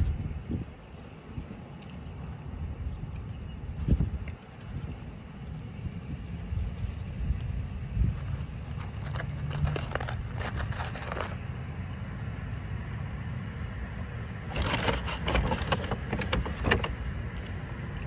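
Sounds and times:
steady low rumble: 0:00.0 - 0:18.0
cardboard and paper bag rustling: 0:08.2 - 0:11.4, 0:14.5 - 0:17.1.

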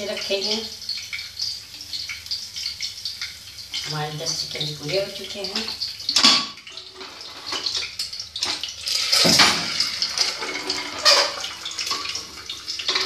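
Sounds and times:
eggs sizzling in hot oil: 0:00.0 - 0:13.0.

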